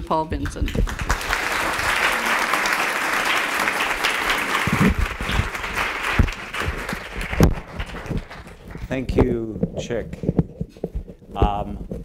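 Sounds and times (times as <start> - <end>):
audience applauding: 0.8 - 9.1
low thumps: 4.7 - 12.0.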